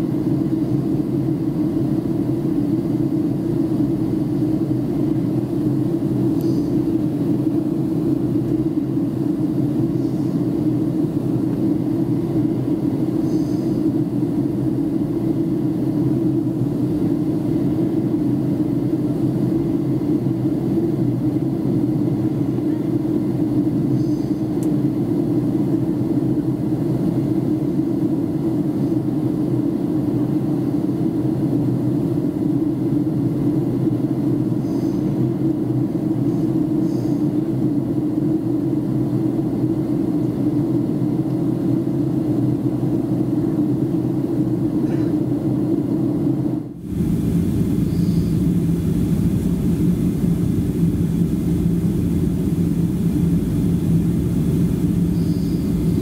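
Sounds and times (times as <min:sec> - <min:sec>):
airplane cabin drone: 0:00.0 - 0:56.0
low hum: 0:31.3 - 0:56.0.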